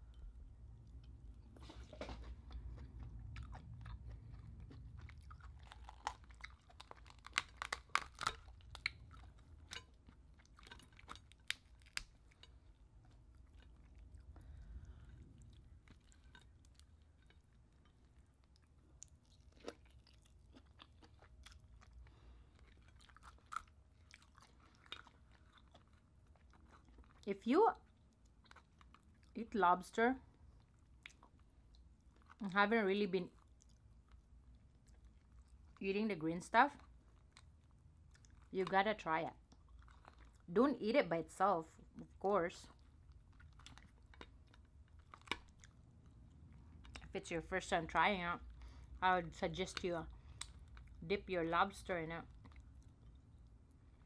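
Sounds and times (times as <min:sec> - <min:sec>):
person chewing: 0:00.0 - 0:27.2, 0:27.9 - 0:29.3, 0:36.8 - 0:38.5, 0:39.4 - 0:40.5, 0:42.7 - 0:47.1, 0:50.1 - 0:51.0, 0:52.3 - 0:54.0
lobster shell cracking: 0:05.7 - 0:09.9, 0:10.6 - 0:12.6.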